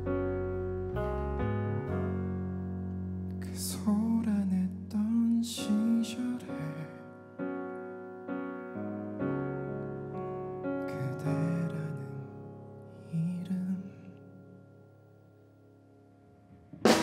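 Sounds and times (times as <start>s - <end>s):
electric piano chords: 0.0s - 17.0s
man singing: 3.4s - 7.1s, 10.9s - 14.2s.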